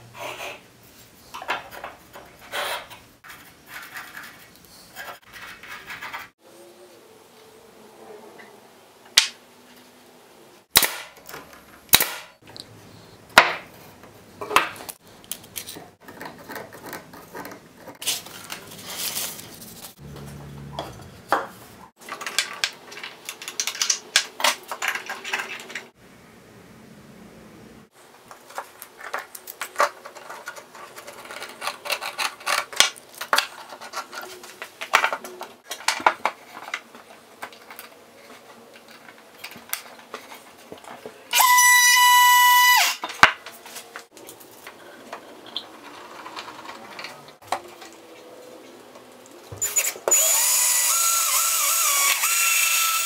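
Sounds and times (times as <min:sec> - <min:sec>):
wood scraping: 0:28.3 - 0:41.2, 0:42.5 - 0:48.2.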